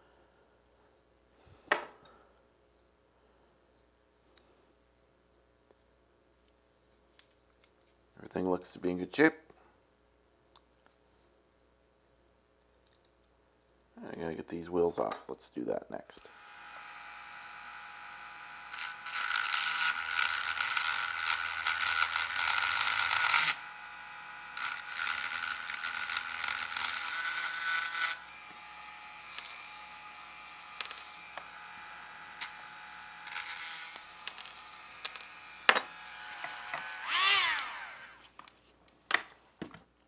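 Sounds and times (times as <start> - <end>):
rotary tool grinding steel: 16.3 - 38.3
rotary tool whining: 16.3 - 38.4.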